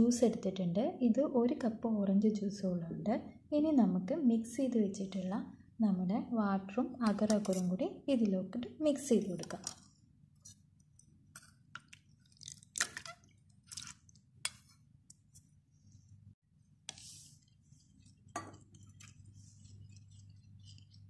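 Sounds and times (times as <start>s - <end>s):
wet stirring swish: 13.0s - 21.0s.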